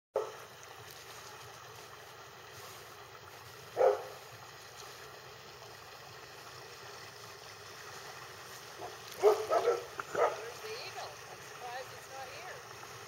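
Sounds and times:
distant boat motor humming: 7.7 - 12.8.

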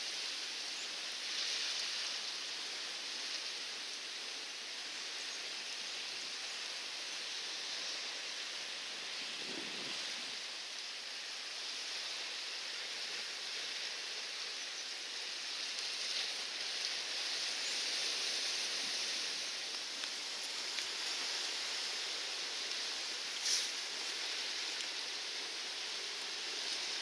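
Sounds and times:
steady outdoor hiss: 0.0 - 27.0.

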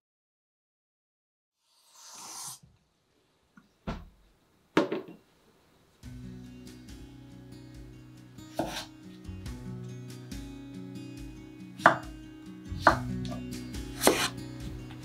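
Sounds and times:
soft background music: 6.0 - 15.0
knife cutting potato on board: 8.5 - 8.9, 11.8 - 12.1, 12.8 - 14.8.

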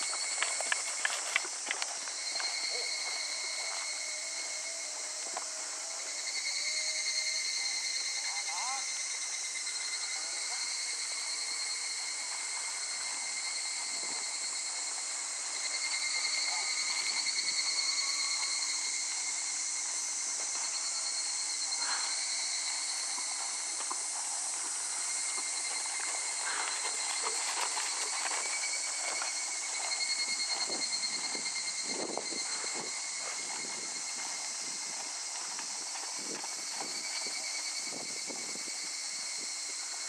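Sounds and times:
horse hooves trotting on sand: 0.0 - 6.2, 22.2 - 40.0
high insect chorus buzzing: 0.0 - 40.0.

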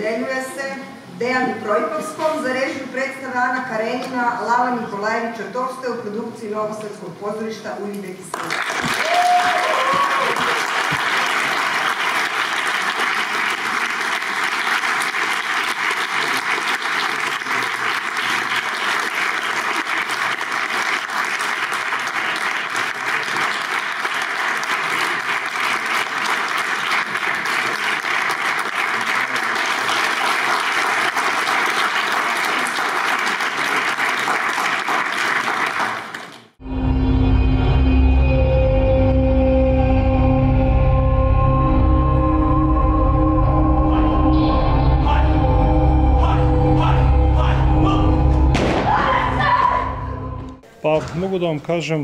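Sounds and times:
audience applauding: 8.3 - 36.6.

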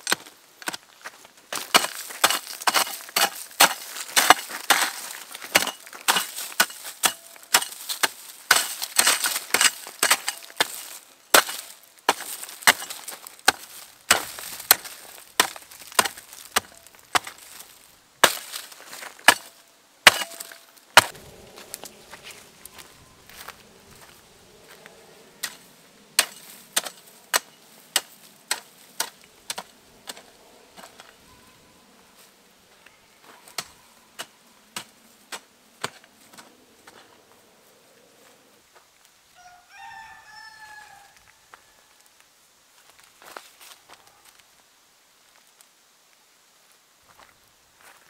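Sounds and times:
wood splintering crackle: 1.5 - 24.2
blade chopping wood: 1.6 - 17.6, 18.2 - 21.2, 26.2 - 31.1.

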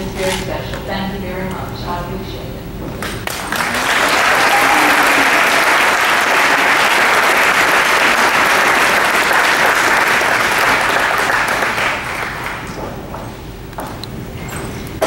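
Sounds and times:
audience applause: 3.2 - 13.0.

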